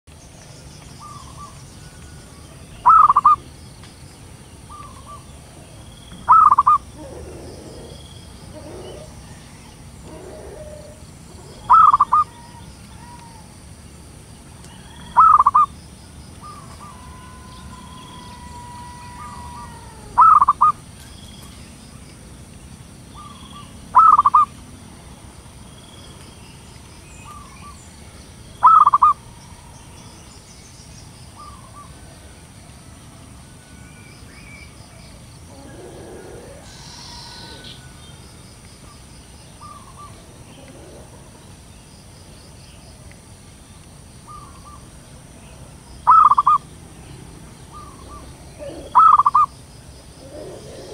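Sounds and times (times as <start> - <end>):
dove cooing: 2.8 - 3.4, 6.3 - 13.4, 15.0 - 15.7, 16.4 - 20.8, 23.2 - 24.5, 28.6 - 29.7, 35.5 - 37.9, 39.6 - 41.4, 46.1 - 46.6, 47.7 - 49.5, 50.2 - 50.9.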